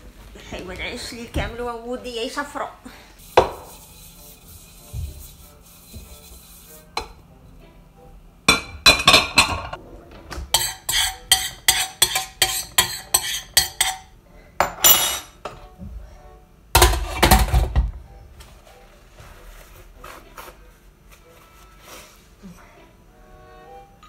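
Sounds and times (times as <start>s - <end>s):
metal kitchenware clanking on pot: 10.4s - 15.4s, 16.8s - 17.8s.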